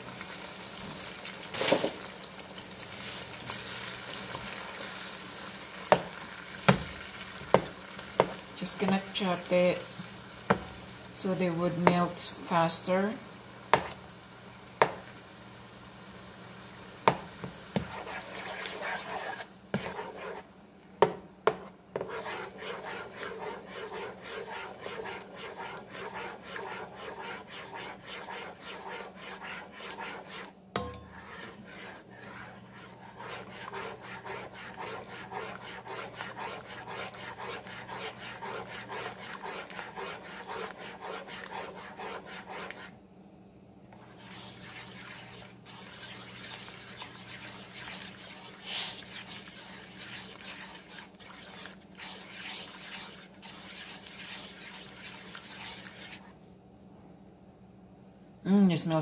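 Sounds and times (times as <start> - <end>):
spoon scraping a pot: 7.5 - 9.8, 17.1 - 43.0, 44.0 - 56.4
spoon knocking against pot: 30.8 - 31.2.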